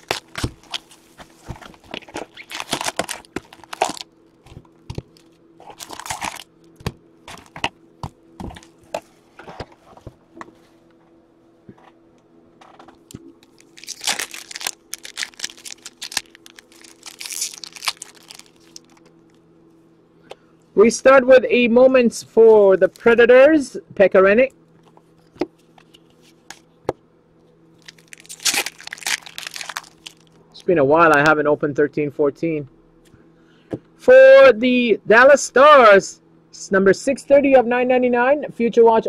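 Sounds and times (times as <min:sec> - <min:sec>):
wrapper tearing and crinkling: 0:00.0 - 0:06.5, 0:13.4 - 0:19.1, 0:27.8 - 0:30.4
card box crackling and clicking: 0:00.0 - 0:07.8, 0:13.4 - 0:19.1.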